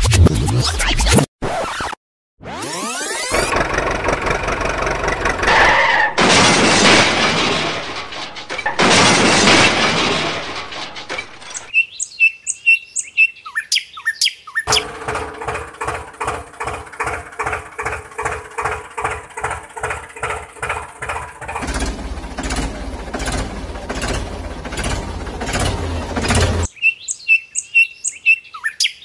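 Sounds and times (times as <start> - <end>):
tractor engine idling: 3.4 - 5.7, 14.7 - 26.7
birds chirping: 11.5 - 15.0, 24.8 - 29.0
low hum: 14.7 - 26.7.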